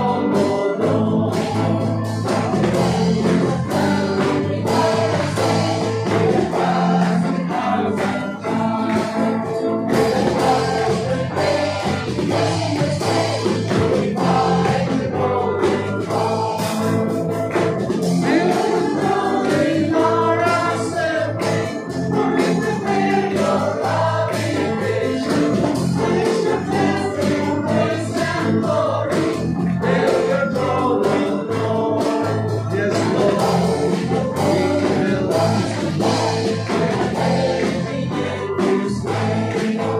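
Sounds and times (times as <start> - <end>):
acoustic guitar: 0.0 - 39.9
electric guitar: 0.0 - 39.9
keyboard playing: 0.0 - 39.9
man singing into a microphone: 29.8 - 39.9.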